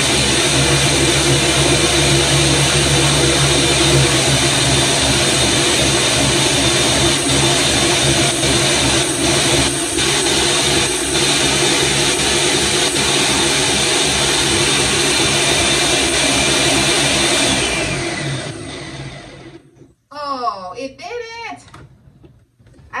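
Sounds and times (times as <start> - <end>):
blender pitcher shaking: 0.0 - 19.4
blender motor running: 0.0 - 19.7.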